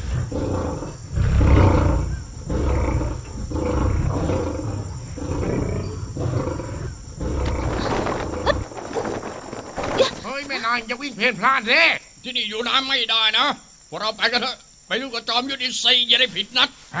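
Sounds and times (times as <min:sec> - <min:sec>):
tigers roaring: 0:00.0 - 0:09.1.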